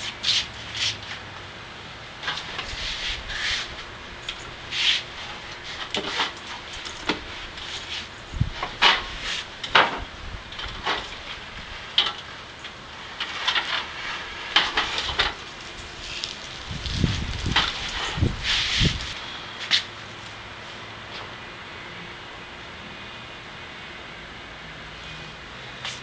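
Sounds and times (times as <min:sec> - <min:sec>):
metal knocks clunks and scrapes: 0:04.7 - 0:11.4, 0:13.2 - 0:15.5, 0:17.0 - 0:19.2.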